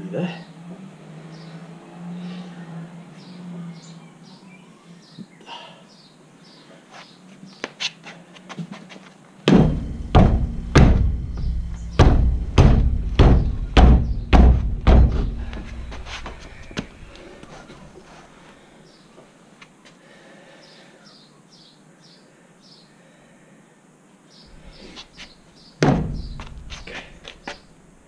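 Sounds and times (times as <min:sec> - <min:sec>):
boot kicking a tyre: 0:09.5 - 0:17.0, 0:25.8 - 0:27.6.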